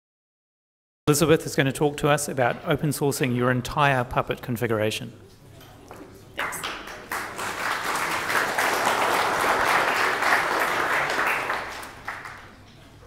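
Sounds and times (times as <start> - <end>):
audience applauding: 6.4 - 12.7.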